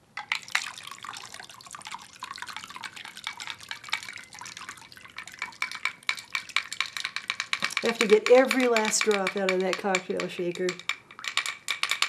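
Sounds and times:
liquid pouring into a glass: 0.2 - 8.4.

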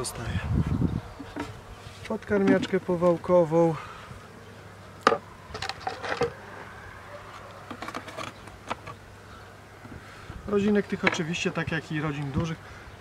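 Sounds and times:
knocks and scrapes of hive parts: 1.1 - 3.4, 5.0 - 6.7, 7.3 - 9.1, 9.8 - 12.5.

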